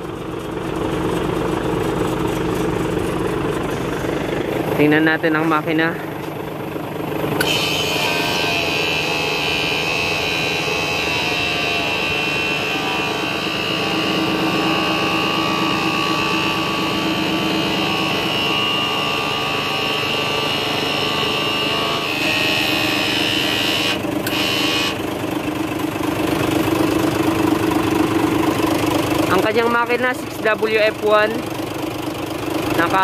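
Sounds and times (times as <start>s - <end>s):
diesel engine idling: 0.0s - 33.0s.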